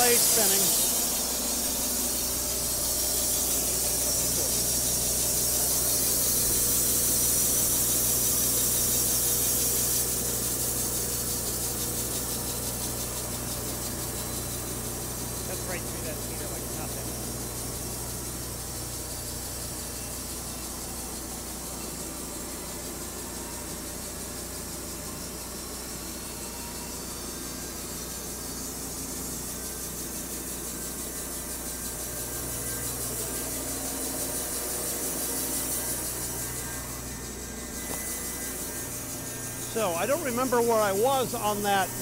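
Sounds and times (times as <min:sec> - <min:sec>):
band saw cutting wood: 0:00.0 - 0:12.0, 0:32.0 - 0:42.0
electric motor hum: 0:00.0 - 0:42.0.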